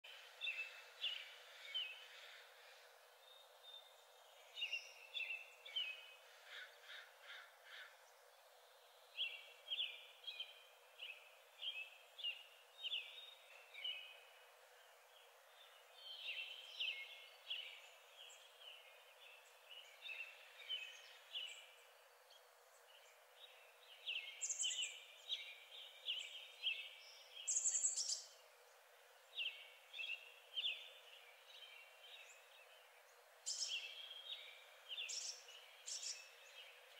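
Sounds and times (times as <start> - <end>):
faint outdoor hiss: 0.0 - 36.9
bird chirping: 0.1 - 36.9.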